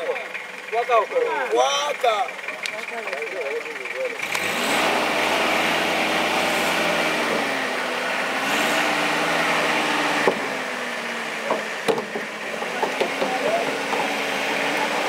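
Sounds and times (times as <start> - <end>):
truck engine running at low revs: 0.0 - 15.0
wooden planks knocking: 11.4 - 14.1.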